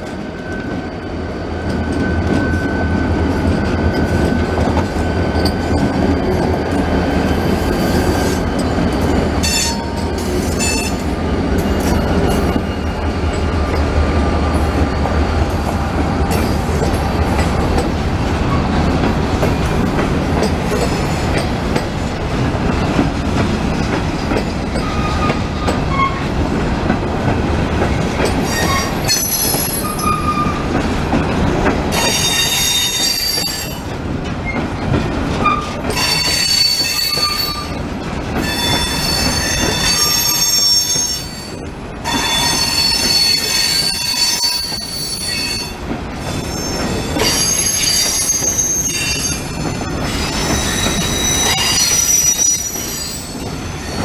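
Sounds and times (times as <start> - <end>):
diesel locomotive engine rumble: 0.0 - 40.4
train wheels clacking and squealing: 0.0 - 54.0.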